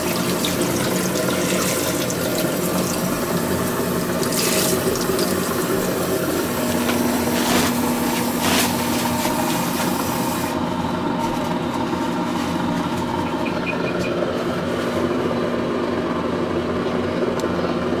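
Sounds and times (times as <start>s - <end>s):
tap water running into sink: 0.0s - 7.0s.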